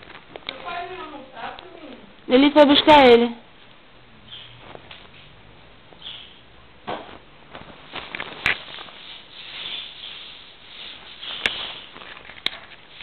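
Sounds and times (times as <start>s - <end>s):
rustling of satin bedding: 0.0s - 1.8s, 4.5s - 6.0s, 7.0s - 13.0s.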